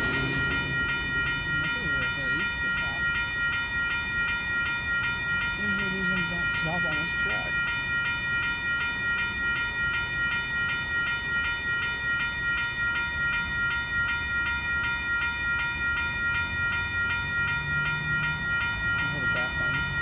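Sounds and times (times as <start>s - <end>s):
freight cars rumbling past: 0.0s - 1.7s
crossing bell dinging: 0.0s - 20.0s.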